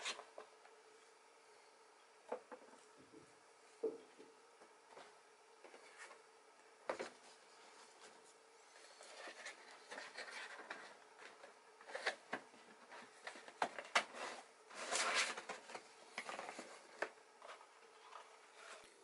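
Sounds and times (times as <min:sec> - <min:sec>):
cardboard rubbing and scraping: 0:12.8 - 0:16.8.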